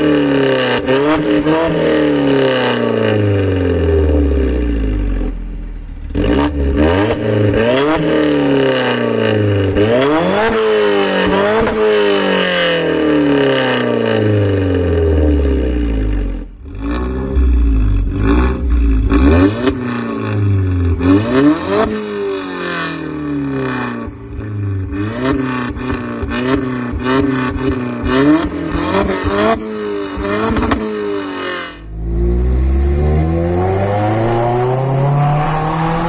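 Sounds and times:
car engine revving: 0.0 - 36.0
deep low rumble: 31.8 - 36.0.

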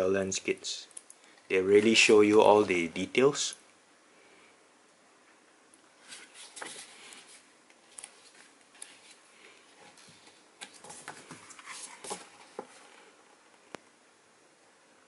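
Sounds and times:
pages turning: 6.0 - 12.9.

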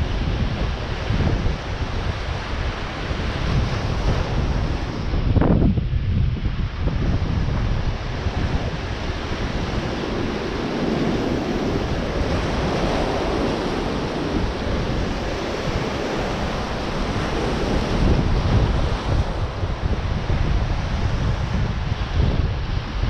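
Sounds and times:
wind buffeting microphone: 0.0 - 23.0
surf breaking on rocks: 6.8 - 21.4.

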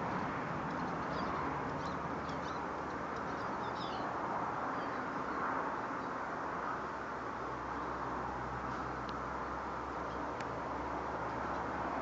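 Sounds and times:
road traffic hum: 0.0 - 12.0
small birds twittering: 0.7 - 6.2, 9.9 - 10.4.

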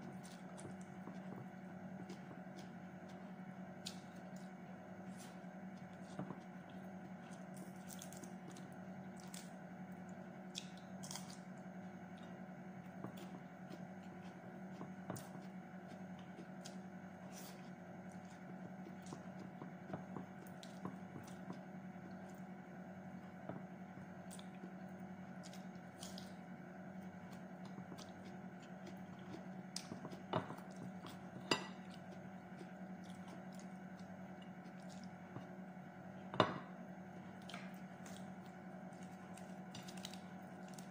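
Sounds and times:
steady low hum: 0.0 - 40.9
chewing smacks: 27.0 - 35.5, 37.3 - 40.9.

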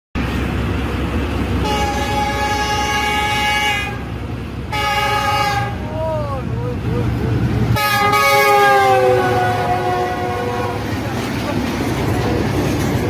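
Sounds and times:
low train rumble: 0.2 - 13.0
diesel locomotive horn blasts: 1.6 - 6.0, 7.8 - 11.0.

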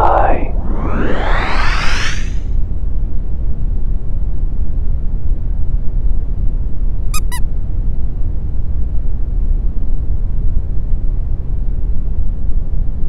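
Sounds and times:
cartoon space rumble: 0.0 - 2.5
short high squeaks: 7.2 - 7.4.

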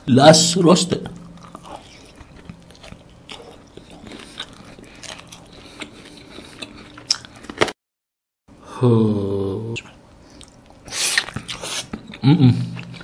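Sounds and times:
chewing and lip smacking: 1.0 - 7.7, 10.3 - 13.0.

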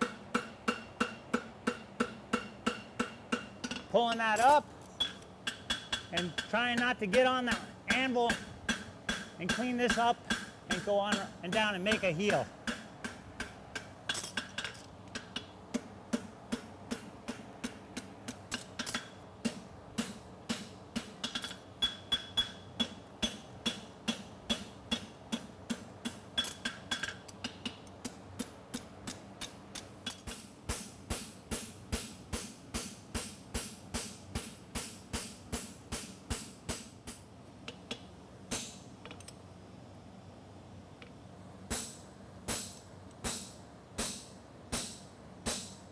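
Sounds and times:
hammer striking on anvil: 0.0 - 18.1, 18.8 - 27.8, 41.7 - 45.8.

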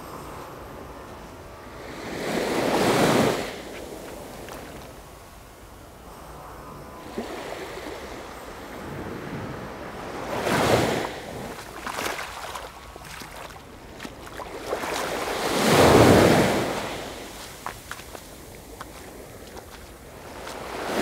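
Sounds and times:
surf breaking on beach: 10.1 - 21.0.

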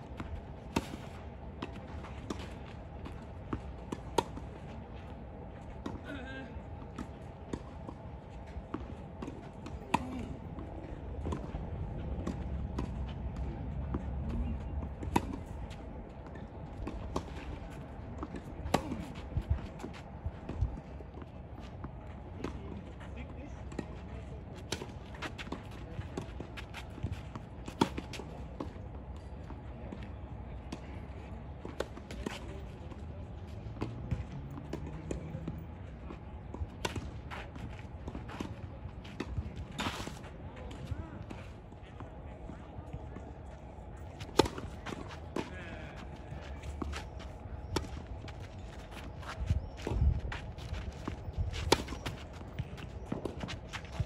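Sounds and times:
tennis ball bouncing: 44.2 - 54.0
tennis rackets hitting ball: 44.2 - 54.0.

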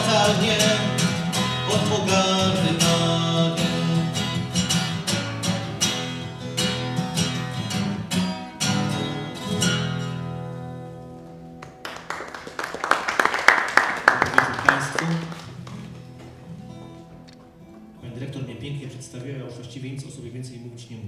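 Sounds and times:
acoustic guitar strumming: 0.0 - 11.9, 14.7 - 20.4
audience applause: 11.6 - 16.2.

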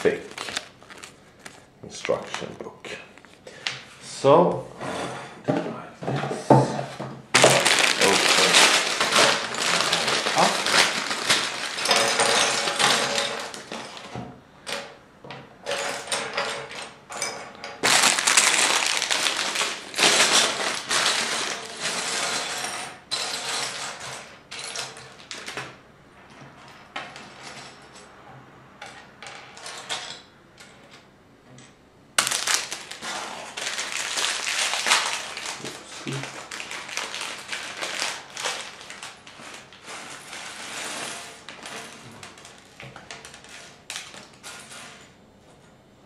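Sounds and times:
plastic pieces clattering: 0.0 - 1.6, 7.4 - 14.9, 17.8 - 25.7, 32.2 - 45.0
plastic bags crinkling: 0.0 - 2.6, 7.3 - 14.2, 17.8 - 22.4, 32.2 - 44.4.

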